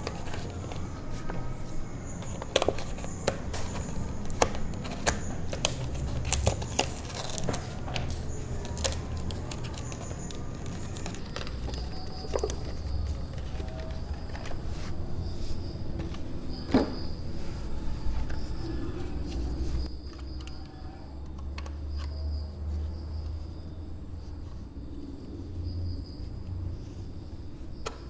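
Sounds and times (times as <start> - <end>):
cardboard and plastic clicks and scrapes: 0.0 - 17.0.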